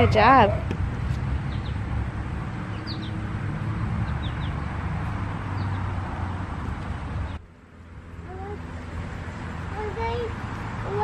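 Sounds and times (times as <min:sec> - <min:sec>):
bird chirping: 0:01.4 - 0:01.8, 0:02.6 - 0:04.9, 0:05.5 - 0:06.0.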